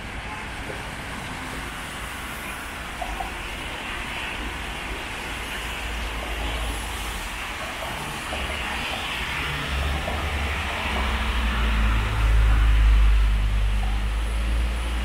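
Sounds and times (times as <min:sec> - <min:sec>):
rain and tyres on wet pavement: 0:00.0 - 0:15.0
vehicle engines rumbling: 0:07.2 - 0:15.0.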